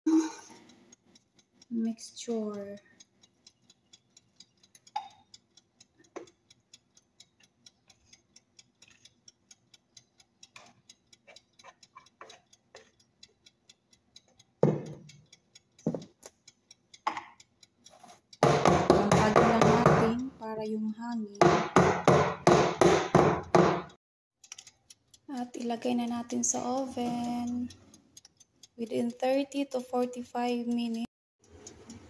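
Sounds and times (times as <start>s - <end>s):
rapid faint ticking: 0.3s - 32.0s
spatula scraping metal bowl: 11.3s - 13.0s.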